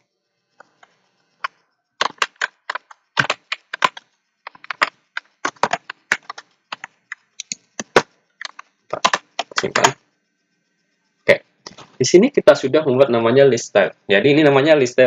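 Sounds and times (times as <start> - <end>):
typing on a computer keyboard: 0.6 - 10.0.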